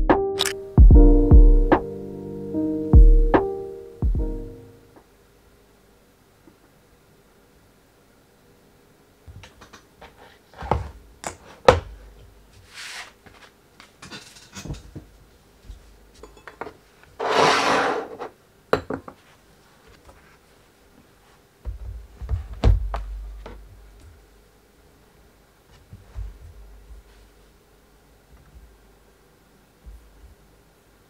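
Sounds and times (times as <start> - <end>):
low thuds: 4.0 - 4.5
rustling rub: 12.6 - 13.5.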